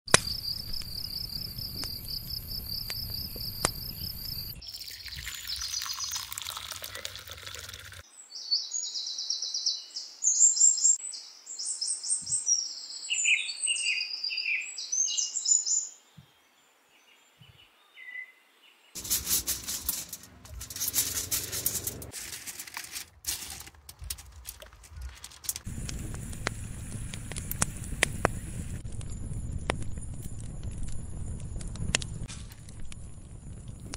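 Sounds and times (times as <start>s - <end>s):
crackling: 0.1s - 4.6s, 19.0s - 33.9s
birds chirping: 0.2s - 6.8s.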